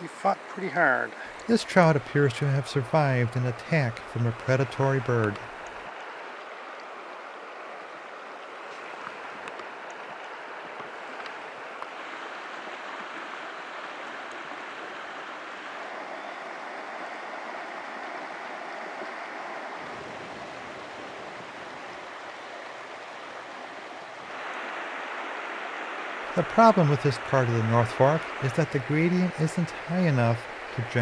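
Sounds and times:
river water running over cobbles: 0.0s - 31.0s.

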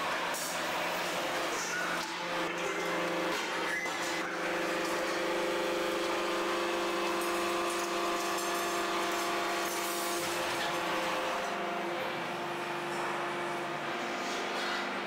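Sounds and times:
factory machinery humming: 0.0s - 15.0s.

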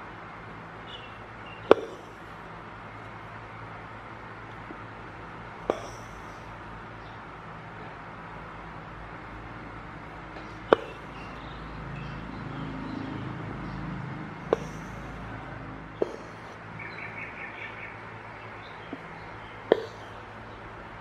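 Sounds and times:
faint bird chirps: 0.8s - 2.3s.

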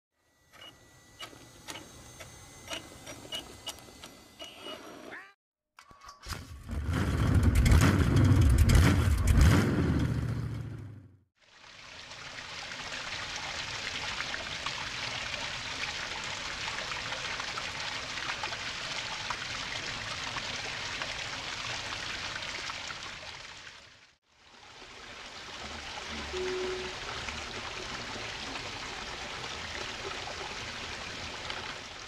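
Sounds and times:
stream water rushing and splashing: 11.5s - 32.0s.

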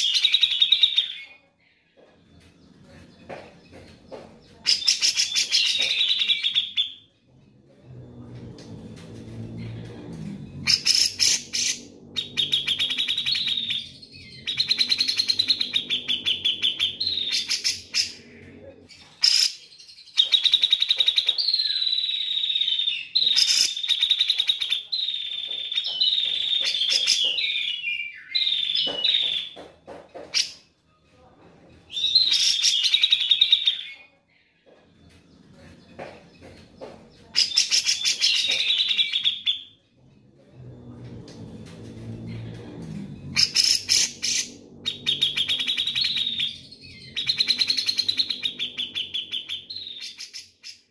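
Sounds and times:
bird singing trilled phrases: 10.6s - 29.6s.

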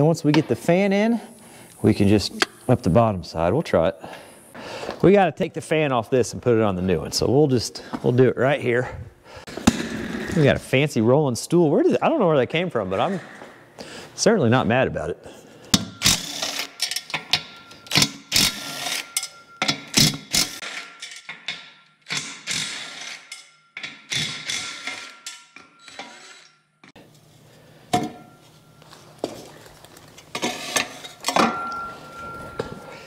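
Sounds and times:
metal clanks and knocks: 19.0s - 22.5s, 30.3s - 32.8s.

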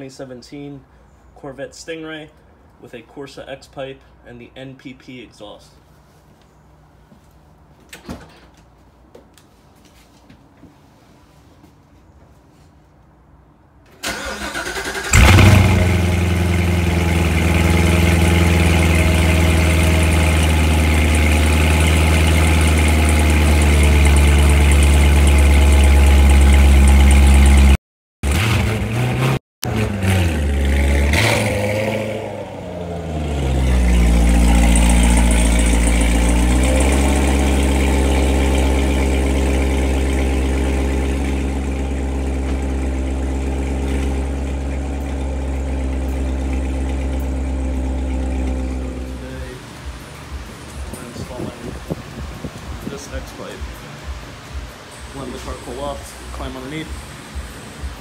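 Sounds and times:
car engine idling: 14.0s - 27.8s, 29.7s - 58.0s.

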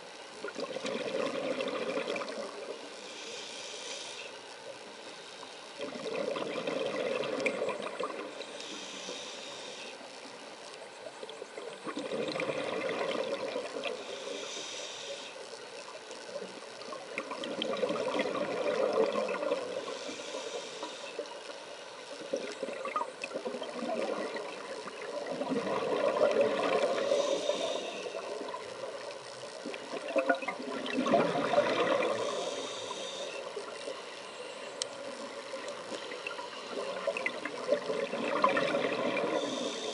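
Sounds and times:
regulator hiss: 2.3s - 6.0s, 7.8s - 12.4s, 13.7s - 22.8s, 23.4s - 30.8s, 31.4s - 39.9s
diver exhaling bubbles: 5.8s - 8.3s, 11.8s - 13.9s, 22.4s - 28.6s, 29.8s - 32.5s, 36.7s - 39.8s.

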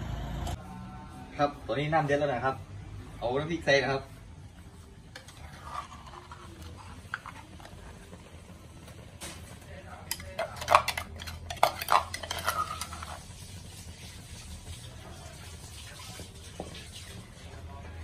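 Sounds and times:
metal spoon scraping mortar: 5.1s - 7.7s, 10.1s - 13.4s.

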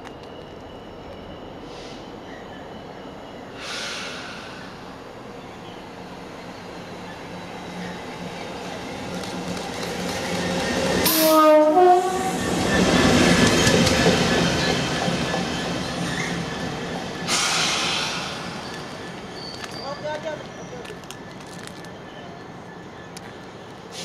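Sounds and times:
locomotive passing: 2.6s - 24.0s
wheels on rails: 7.1s - 11.1s
two-tone train horn: 11.0s - 12.4s.

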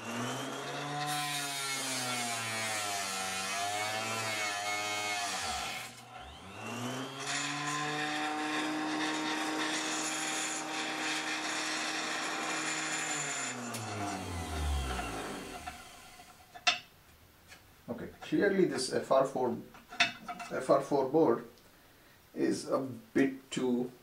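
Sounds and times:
table saw cutting circuit board: 0.0s - 16.5s.

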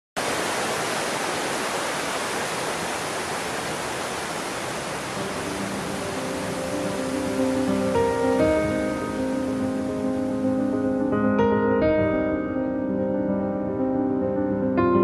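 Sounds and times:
stream rushing over rocks: 0.2s - 10.7s.

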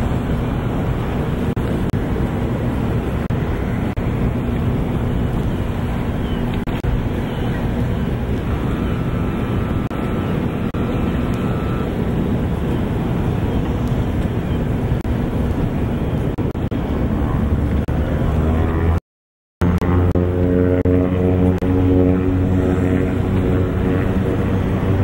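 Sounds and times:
plane engines rumbling: 0.0s - 19.0s, 19.6s - 25.0s
faint high steady tone: 8.5s - 12.0s.

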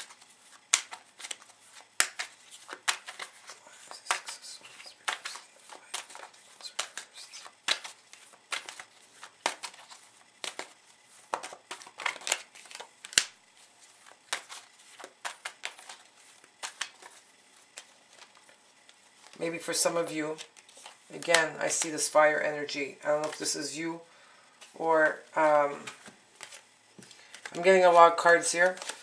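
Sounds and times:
card snaps and flicks: 0.0s - 13.4s, 16.6s - 18.3s
cards being shuffled: 0.0s - 22.2s, 23.1s - 23.7s, 24.6s - 29.0s.

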